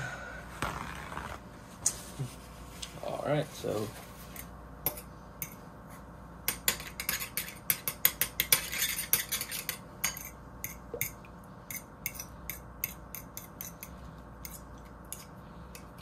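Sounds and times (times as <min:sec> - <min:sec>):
fork clinking against ceramic bowl: 0:06.5 - 0:13.9.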